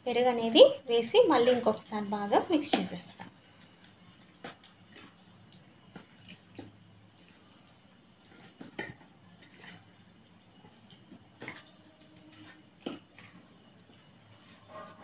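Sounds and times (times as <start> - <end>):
wet squishing and rubbing: 3.4 - 15.0.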